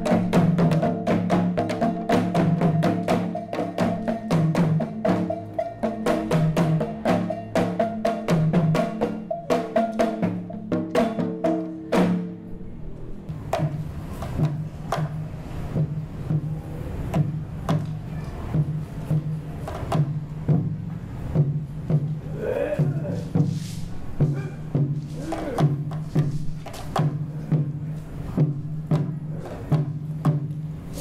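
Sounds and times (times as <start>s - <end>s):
pitched percussion ringing notes: 0.0s - 12.7s.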